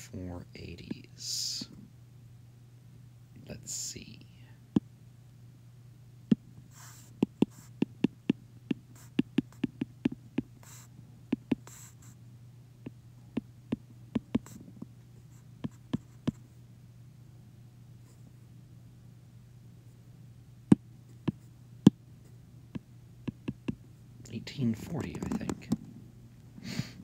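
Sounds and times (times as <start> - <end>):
steady low hum: 0.0 - 27.0
stylus tapping on glass screen: 23.3 - 23.8.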